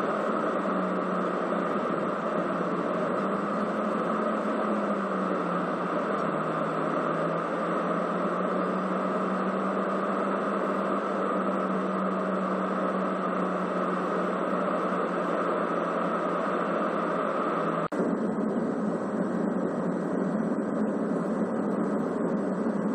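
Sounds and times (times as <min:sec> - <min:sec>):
jet airliner cabin noise: 0:00.0 - 0:22.9.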